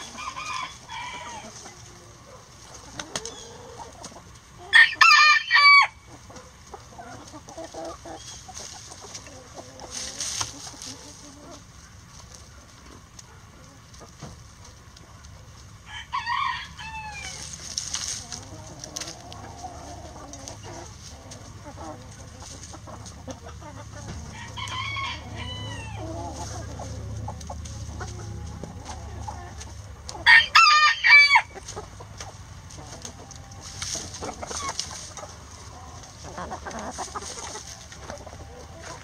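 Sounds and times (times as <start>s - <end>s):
rooster crowing: 0.0s - 1.5s, 4.7s - 6.0s, 15.8s - 17.4s, 24.2s - 26.1s, 30.2s - 31.6s
hens clucking: 0.0s - 39.0s.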